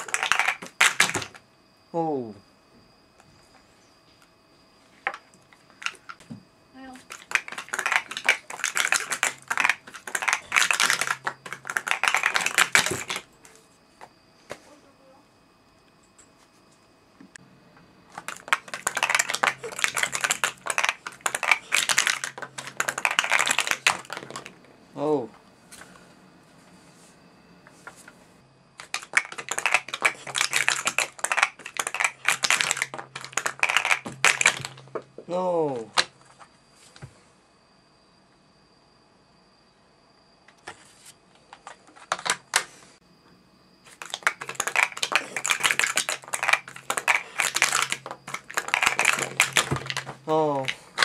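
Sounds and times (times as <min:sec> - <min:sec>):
plastic cups clattering: 0:00.0 - 0:01.4, 0:07.0 - 0:13.2, 0:18.1 - 0:24.6, 0:28.8 - 0:34.9, 0:43.9 - 0:50.9.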